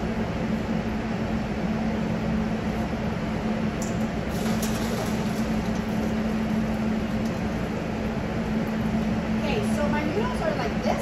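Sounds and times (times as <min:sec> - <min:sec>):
kitchen equipment humming: 0:03.8 - 0:10.9.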